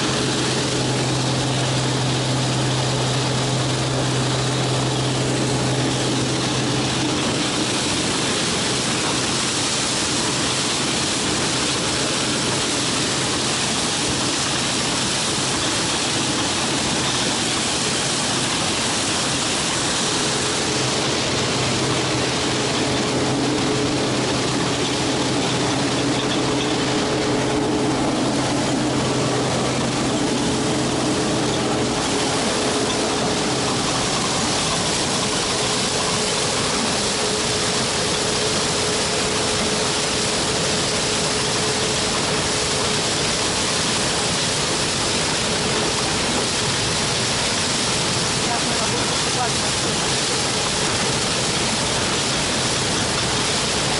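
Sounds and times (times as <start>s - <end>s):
low hum: 0.0s - 11.8s, 18.7s - 43.1s
combine harvester drone and hiss: 0.0s - 53.9s.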